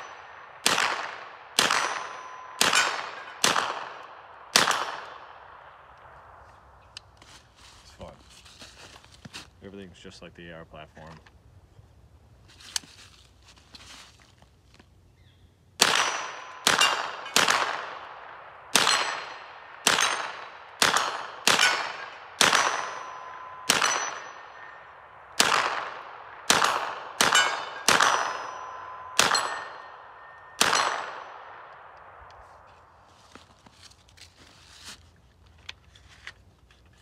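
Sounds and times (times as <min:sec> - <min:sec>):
pistol shots echoing: 0:00.0 - 0:05.8, 0:15.8 - 0:32.2.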